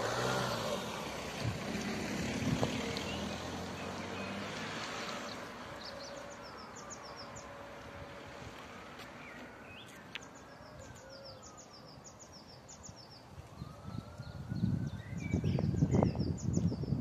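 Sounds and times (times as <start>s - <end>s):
birds chirping: 2.6s - 7.9s, 8.7s - 17.0s.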